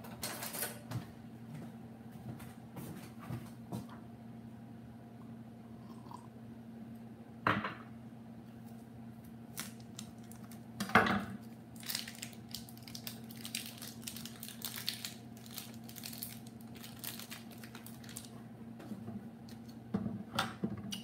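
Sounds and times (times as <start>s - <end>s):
plastic packaging crinkling: 9.5s - 10.7s, 11.7s - 18.4s.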